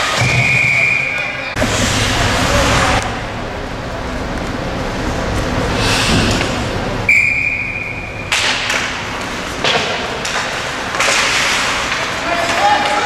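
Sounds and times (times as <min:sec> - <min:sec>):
ice hockey rink noise: 0:00.0 - 0:13.0
referee's whistle blast: 0:00.2 - 0:01.5, 0:07.1 - 0:08.1.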